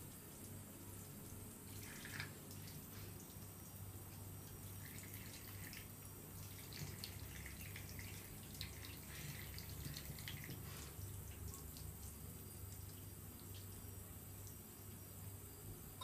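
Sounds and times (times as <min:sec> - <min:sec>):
water splashes and drips: 0:00.0 - 0:15.0
tap water running into basin: 0:00.0 - 0:15.4.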